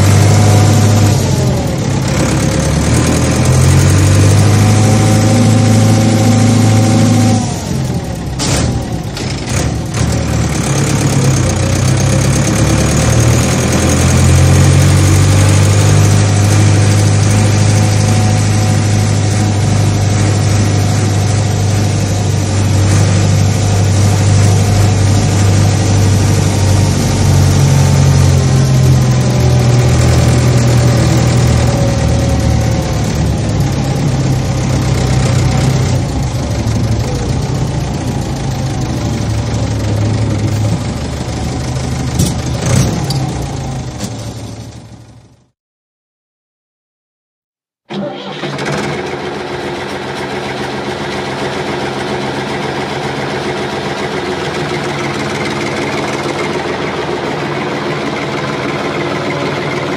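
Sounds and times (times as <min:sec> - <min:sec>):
tractor engine running: 0:00.0 - 0:45.4, 0:47.9 - 0:59.9.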